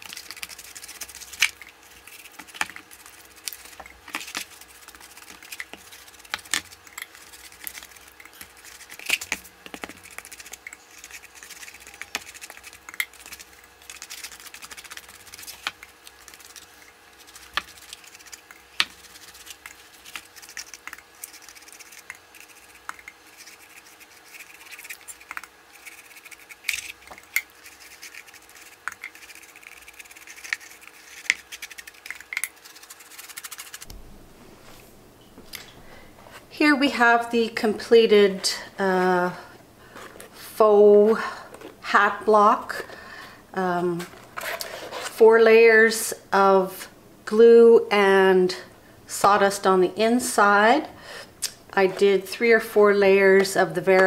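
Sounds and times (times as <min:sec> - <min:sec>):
paintbrush scratching on wood: 0:00.0 - 0:33.9.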